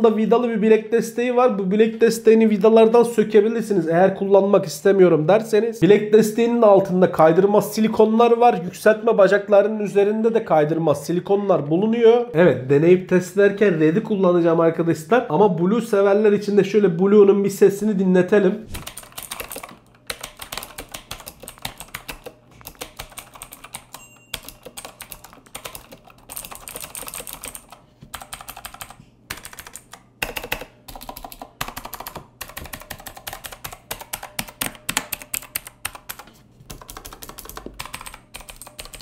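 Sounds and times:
clicky mechanical keyboard typing: 18.8s - 39.0s.

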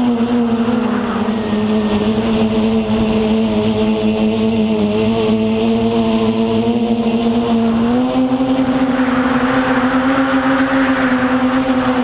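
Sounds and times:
quadcopter propellers humming: 0.0s - 12.0s
rushing hiss: 7.6s - 12.0s.

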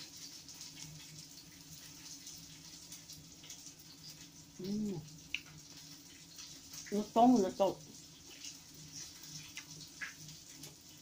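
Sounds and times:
person humming: 4.6s - 5.0s.

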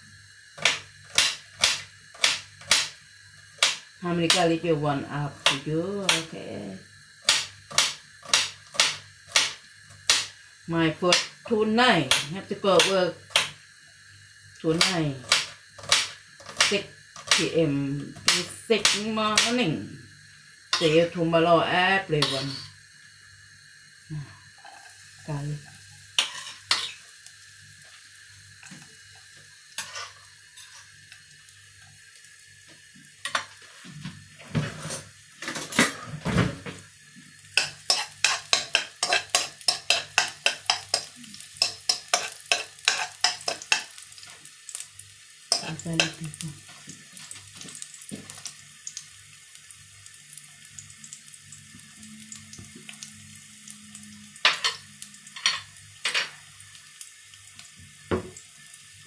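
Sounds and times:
garlic sizzling in oil: 0.0s - 59.0s
metal spoon scraping a wok: 22.2s - 22.7s, 26.2s - 27.0s, 29.8s - 30.9s, 34.6s - 36.0s, 37.6s - 43.9s, 45.5s - 46.2s.

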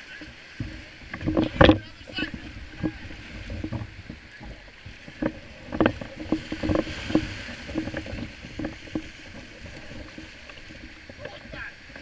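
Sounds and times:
surf hissing: 0.0s - 12.0s
water slapping kayak hull: 0.0s - 12.0s.

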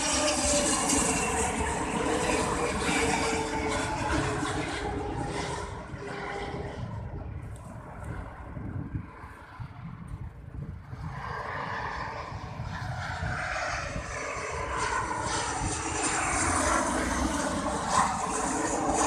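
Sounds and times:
jet airliner engine noise: 0.0s - 19.0s
wind rumble on microphone: 0.0s - 19.0s.

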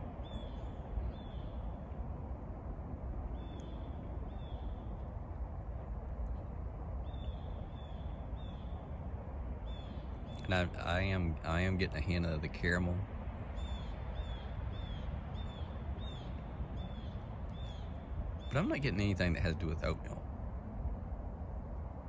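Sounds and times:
low background rumble: 0.0s - 22.0s
bird chirping: 0.2s - 1.6s, 13.6s - 20.1s.

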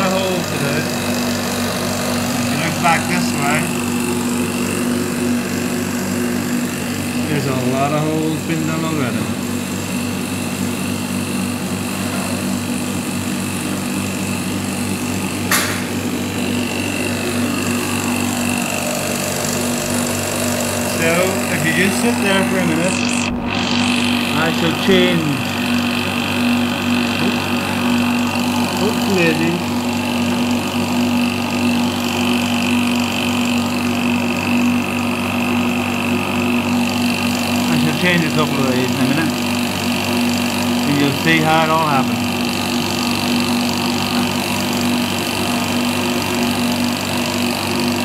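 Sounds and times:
injection pump humming: 0.0s - 48.0s.

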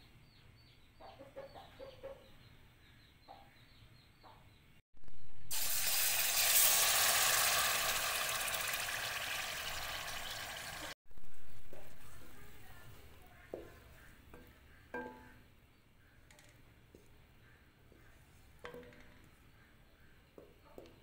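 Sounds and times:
chicken sizzling in hot oil: 5.5s - 11.0s.

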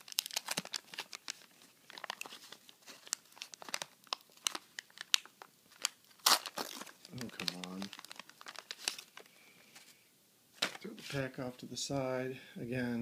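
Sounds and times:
paper wrapper crinkling: 0.0s - 9.9s
cards being handled: 10.6s - 11.3s.

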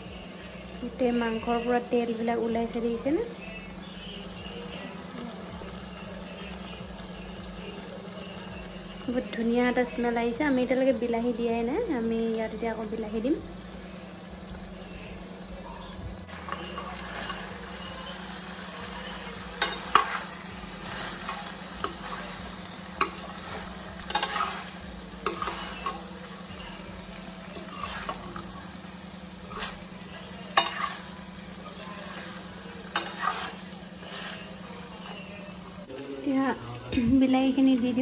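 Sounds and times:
chicken sizzling in a pan: 0.0s - 35.9s
utensil scraping a pan: 16.4s - 18.2s, 19.0s - 26.7s, 27.5s - 28.6s, 29.4s - 35.3s.

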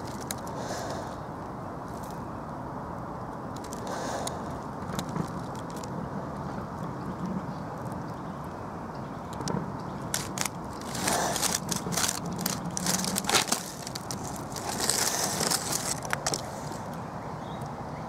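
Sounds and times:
dry leaves and twigs crunching: 0.0s - 1.0s, 1.9s - 2.3s, 3.5s - 6.0s, 10.0s - 17.0s.

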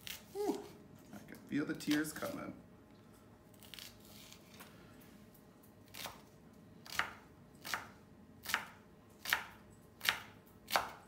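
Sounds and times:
knife chopping on wooden board: 6.8s - 11.0s.

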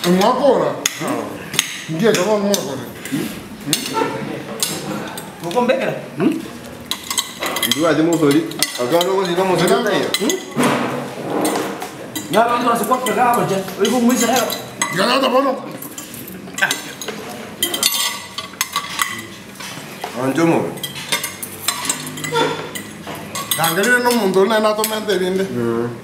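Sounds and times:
forks clinking on a plate: 6.8s - 25.2s.

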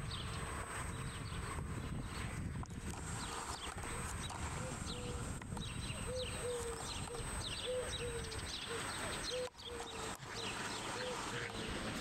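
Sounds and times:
high falling bird chirps: 3.2s - 11.8s.

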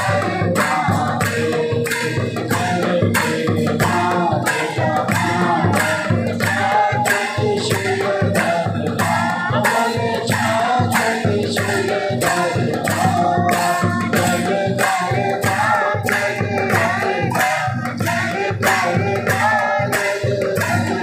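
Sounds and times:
steady percussion beat: 0.0s - 21.0s
voices singing a hymn: 0.0s - 21.0s.

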